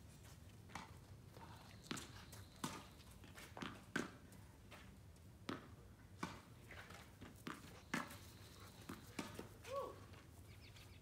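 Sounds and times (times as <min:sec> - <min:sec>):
tennis ball bouncing on court: 0:03.6 - 0:04.2, 0:05.4 - 0:06.5.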